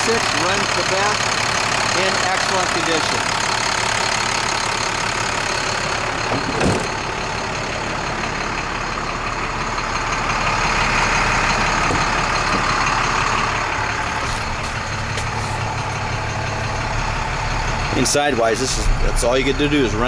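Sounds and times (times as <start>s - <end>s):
diesel engine idling: 0.0s - 20.0s
thump: 6.3s - 7.0s.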